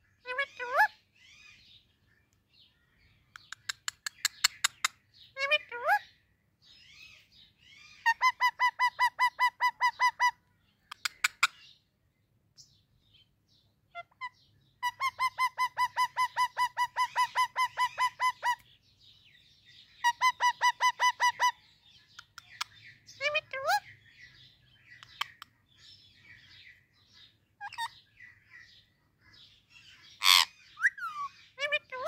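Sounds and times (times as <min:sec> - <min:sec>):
parrot calling: 0:00.2 - 0:01.6, 0:06.8 - 0:11.6, 0:13.9 - 0:18.6, 0:20.0 - 0:25.5, 0:27.6 - 0:28.1, 0:29.8 - 0:32.0
soft chirps: 0:02.1 - 0:05.1.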